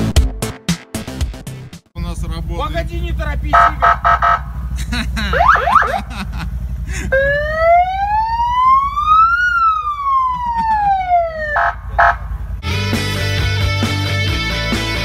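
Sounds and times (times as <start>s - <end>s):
rock music: 0.0s - 1.9s, 12.6s - 15.0s
electronic siren wail: 3.6s - 4.5s, 5.3s - 6.0s, 7.1s - 12.3s.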